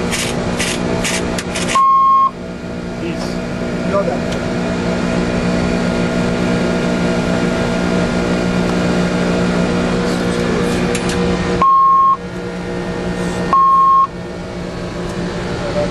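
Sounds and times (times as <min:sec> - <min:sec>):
airliner cockpit engine hum: 0:00.0 - 0:15.9
loud high beep: 0:01.7 - 0:02.4, 0:11.6 - 0:12.2, 0:13.5 - 0:14.1.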